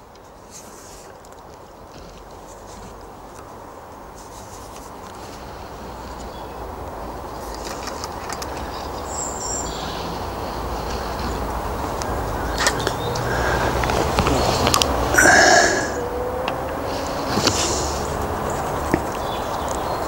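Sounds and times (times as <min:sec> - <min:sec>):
vehicle engine rumble: 0:00.0 - 0:20.0
bird chirp: 0:06.1 - 0:14.6, 0:15.2 - 0:20.0.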